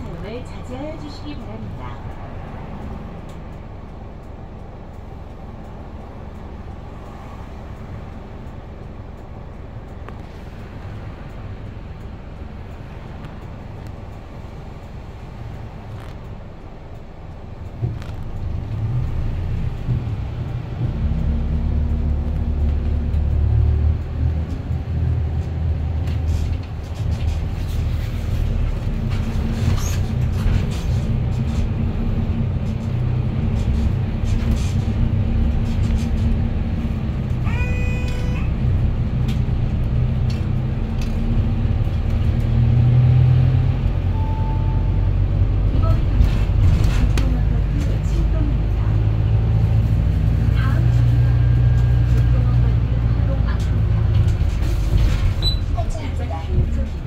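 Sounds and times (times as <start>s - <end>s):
bus engine and road rumble: 0.0s - 57.0s
brief tonal beep: 44.1s - 45.0s.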